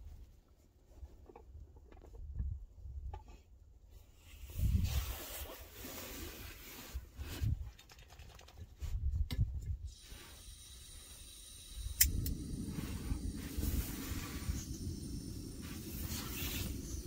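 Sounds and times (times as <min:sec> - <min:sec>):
gas stove igniter clicks: 0:11.8 - 0:12.6.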